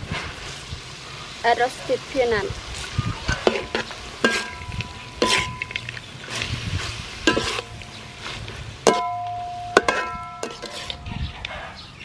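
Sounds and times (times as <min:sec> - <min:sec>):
food sizzling: 0:00.0 - 0:11.2
metal spatula clanking on wok: 0:03.3 - 0:06.0, 0:07.2 - 0:08.0, 0:08.8 - 0:11.2.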